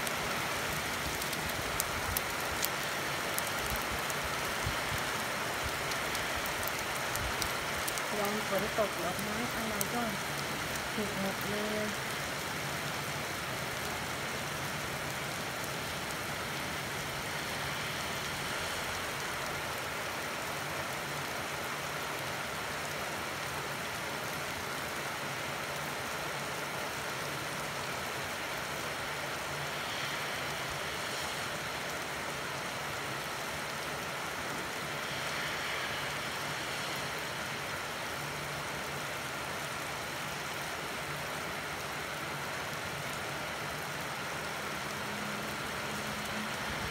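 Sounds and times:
rain falling on pavement: 0.0s - 46.9s.

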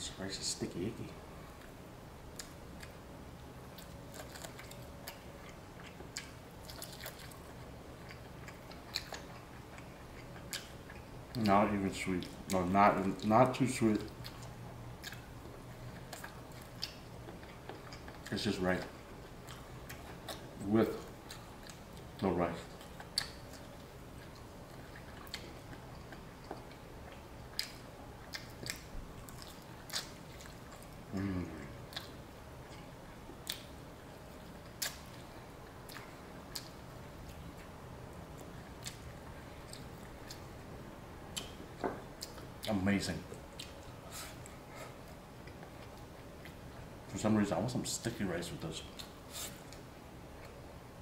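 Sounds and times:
person chewing: 3.7s - 11.6s, 14.0s - 37.7s, 38.3s - 40.6s, 41.3s - 42.7s, 43.3s - 46.9s, 48.9s - 50.6s.

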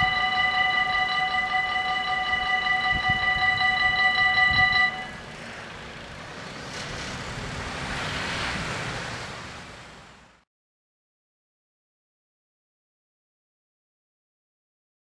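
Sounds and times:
level crossing bells ringing: 0.0s - 5.2s.

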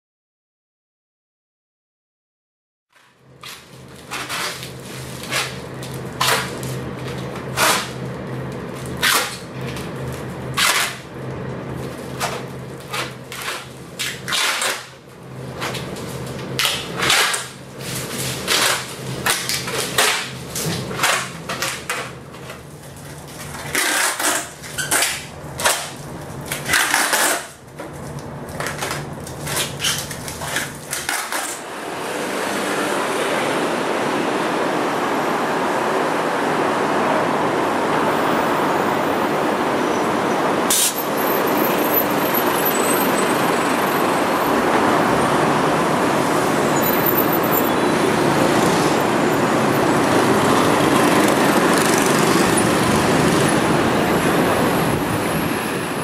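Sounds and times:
packing tape ripping off roll: 3.0s - 11.1s, 11.7s - 31.6s, 40.7s - 41.0s.

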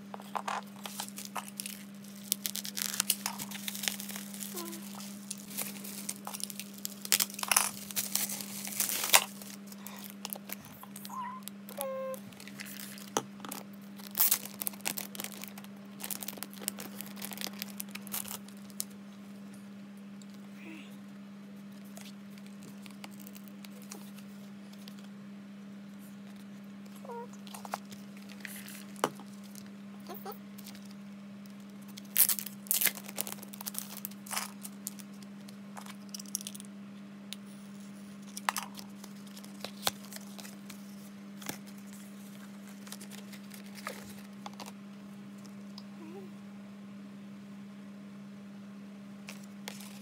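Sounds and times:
low steady hum: 0.0s - 50.0s
bubble-wrap bag crinkling: 0.2s - 19.0s, 21.8s - 25.0s, 27.4s - 31.0s, 31.8s - 36.5s, 38.2s - 44.8s, 49.3s - 50.0s
card and plastic packaging rustling: 0.2s - 19.0s, 21.7s - 25.1s, 26.2s - 36.6s, 38.2s - 44.8s, 49.3s - 50.0s.

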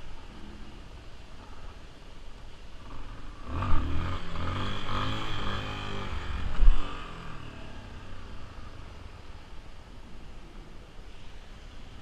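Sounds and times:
motorcycle engine revving: 2.7s - 9.6s.

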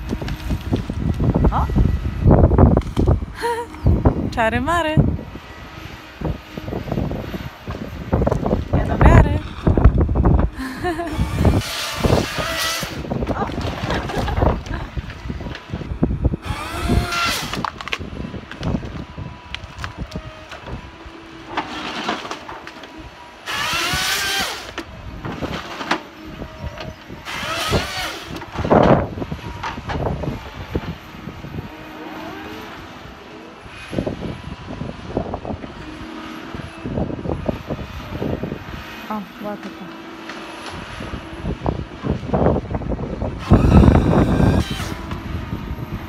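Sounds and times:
branches and timber cracking: 0.0s - 1.5s, 11.5s - 26.1s
diesel engine and hydraulics: 0.0s - 46.0s
harvester head whine: 0.0s - 46.0s.

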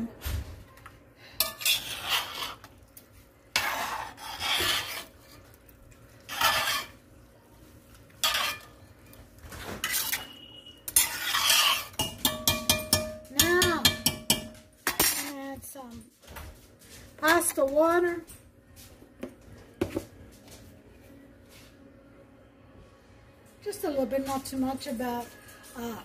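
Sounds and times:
metal clinking on pot: 1.4s - 2.5s, 8.2s - 8.8s, 9.8s - 15.3s
metal spoon scraping a pot: 1.4s - 2.8s, 3.5s - 5.6s, 6.2s - 7.0s, 8.1s - 8.9s, 9.6s - 15.3s.

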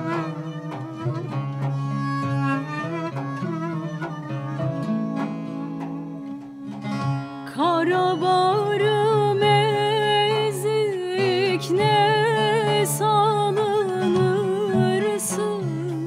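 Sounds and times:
plucked lute notes: 0.0s - 16.0s
woman singing folk song: 6.2s - 16.0s.

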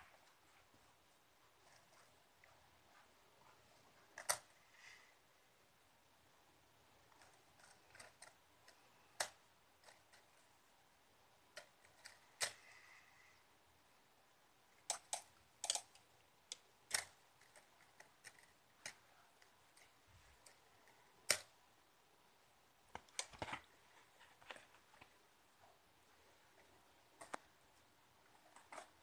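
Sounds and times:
plastic spring toy clicking: 4.2s - 4.4s, 14.8s - 20.6s, 21.2s - 21.6s.

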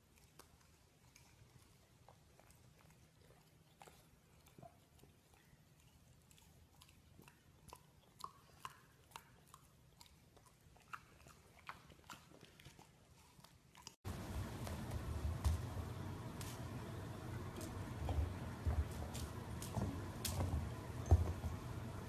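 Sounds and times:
puppy chewing mouth clicks: 0.0s - 14.0s.

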